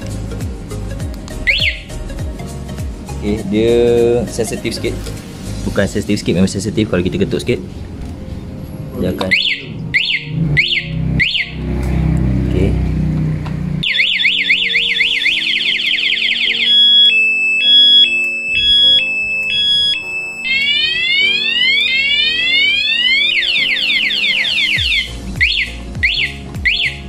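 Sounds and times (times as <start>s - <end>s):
motorcycle alarm siren: 1.5s - 2.0s, 9.3s - 11.8s, 13.8s - 27.0s.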